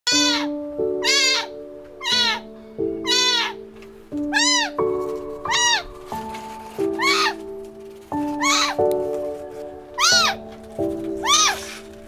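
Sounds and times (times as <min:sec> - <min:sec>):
kitten meowing: 0:00.1 - 0:03.6, 0:04.3 - 0:04.8, 0:05.4 - 0:05.9, 0:07.0 - 0:07.4, 0:08.4 - 0:08.8, 0:10.0 - 0:10.4, 0:11.2 - 0:11.7
background music of sustained notes: 0:00.1 - 0:12.0.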